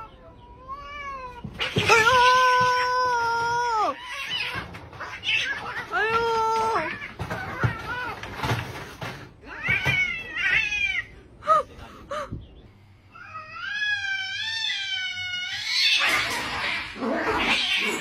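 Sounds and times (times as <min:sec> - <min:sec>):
cats yowling: 0:00.0 - 0:08.5, 0:09.5 - 0:11.2, 0:13.2 - 0:18.0
cats fighting scuffle: 0:00.8 - 0:11.2.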